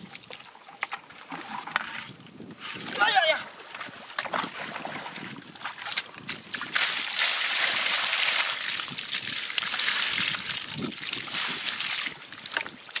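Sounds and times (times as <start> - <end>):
water splashing onto mud: 4.0 - 13.0.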